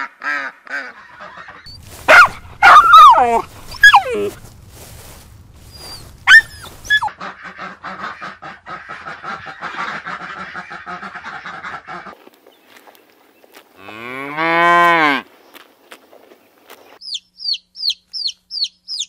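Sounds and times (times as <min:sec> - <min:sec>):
ducks quacking: 0:00.0 - 0:04.0, 0:05.7 - 0:12.2
small dog yelping: 0:01.7 - 0:04.4, 0:05.6 - 0:07.1
cow mooing: 0:13.8 - 0:15.2.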